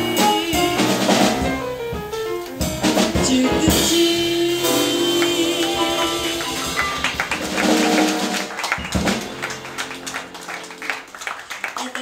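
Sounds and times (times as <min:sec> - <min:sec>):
jazz quartet held chord: 0:00.0 - 0:11.2
scattered clapping: 0:06.4 - 0:12.0.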